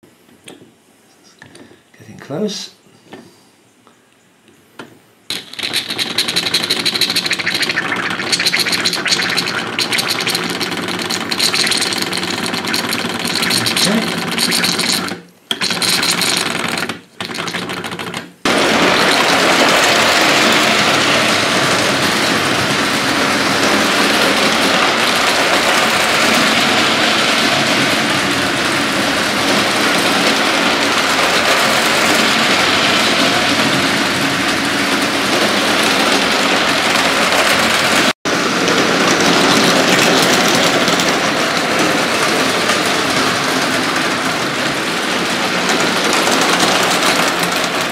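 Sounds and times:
toy steam locomotive chatter: 5.3 - 17.9.

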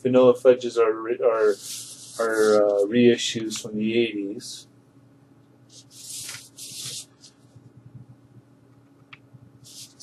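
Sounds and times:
faint low hum: 0.0 - 10.0
cardboard record jackets rubbing: 1.4 - 2.8, 5.7 - 7.4, 9.6 - 10.0.

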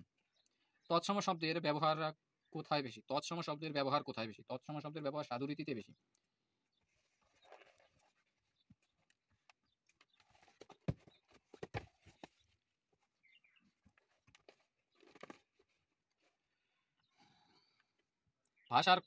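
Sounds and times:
book pages rustling: 6.9 - 16.4.

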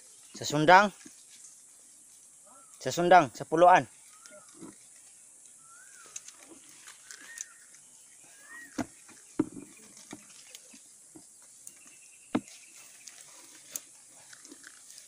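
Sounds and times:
sharp knocks and taps: 8.8 - 10.2.

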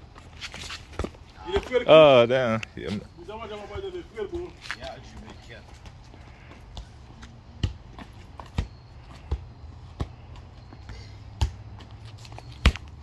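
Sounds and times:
ball kicked dull thuds: 6.7 - 11.9.

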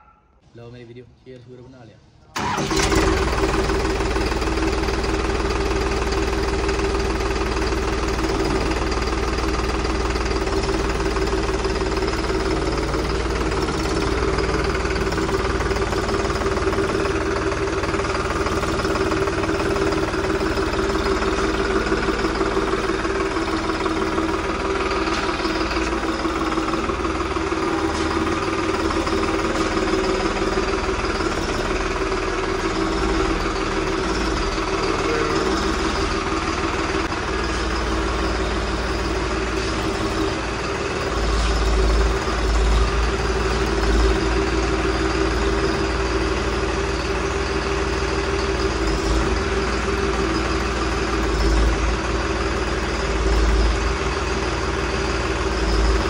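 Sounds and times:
tractor engine running: 2.4 - 56.0.

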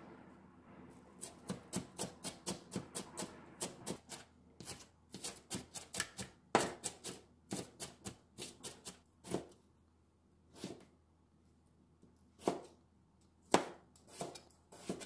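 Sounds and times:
knife chopping on cutting board: 1.2 - 9.6, 12.4 - 12.7, 13.5 - 15.0.

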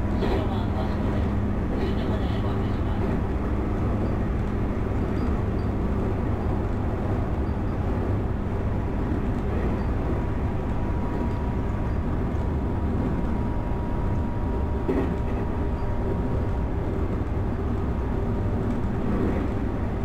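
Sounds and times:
train wheels rumbling on rail: 0.0 - 20.0.

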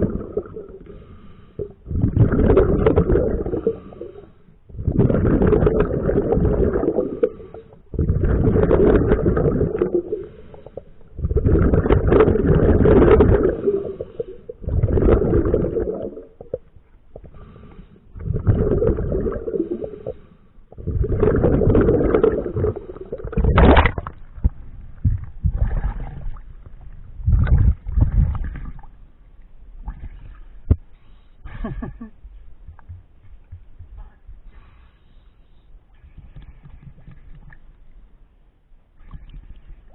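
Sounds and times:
diver's exhaled bubbles underwater: 0.0 - 29.0.

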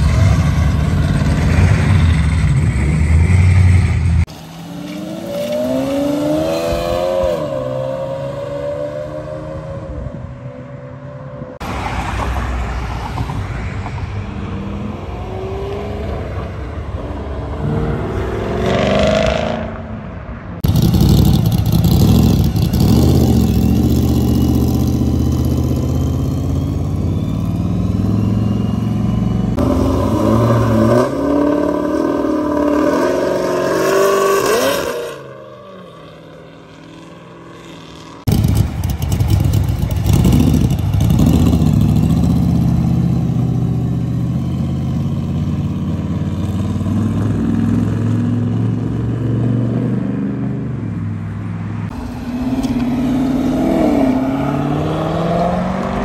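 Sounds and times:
car engines accelerating hard: 38.0 - 56.0.

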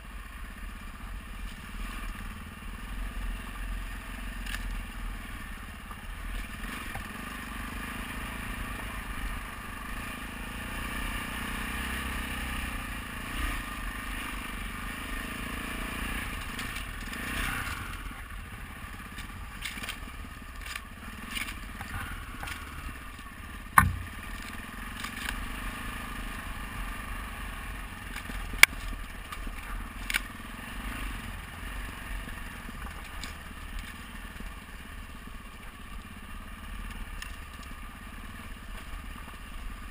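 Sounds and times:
motorcycle engine at low revs: 0.0 - 39.9
tyres crunching on gravel: 16.4 - 25.6
loud sharp knock: 23.8 - 24.2.

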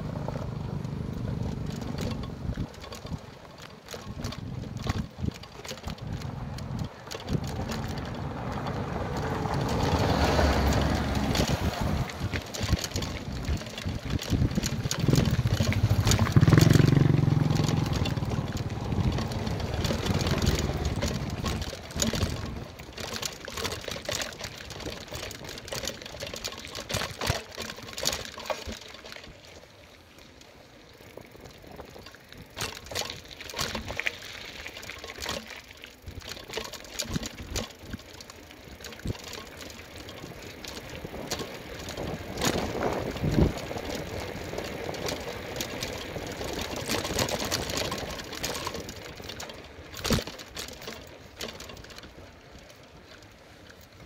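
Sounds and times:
bicycle rattling over gravel: 0.0 - 54.0
wind rushing on microphone: 4.1 - 22.7, 41.0 - 45.3.

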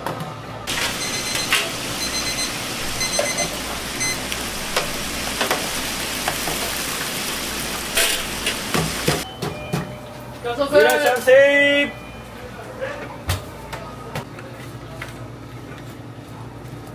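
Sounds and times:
kitchen timer beeping: 0.7 - 4.4
hot oil sizzling in fryer: 0.7 - 9.2.

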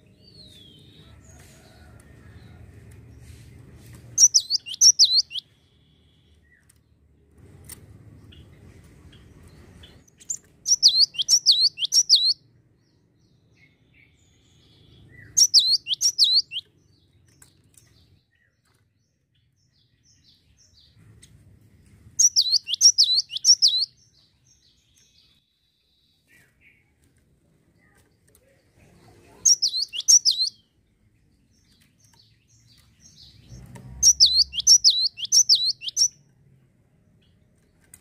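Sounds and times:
bird whistling song: 4.2 - 5.5, 10.2 - 12.4, 15.1 - 16.6, 22.2 - 24.0, 29.4 - 30.6, 34.0 - 36.2.

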